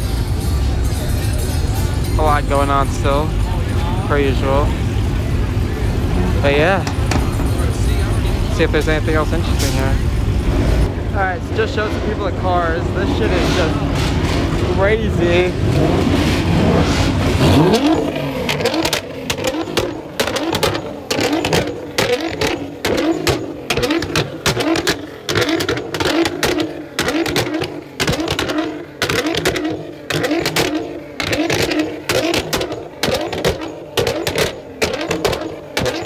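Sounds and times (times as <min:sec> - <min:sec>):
car engine revving: 0:00.0 - 0:36.0
voices: 0:00.5 - 0:36.0.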